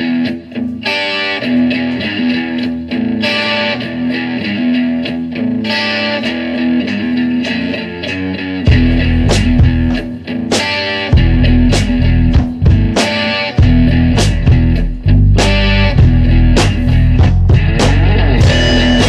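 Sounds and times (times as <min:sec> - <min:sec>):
distorted electric guitar riff: 0:00.0 - 0:19.0
bass and drums: 0:08.7 - 0:19.0.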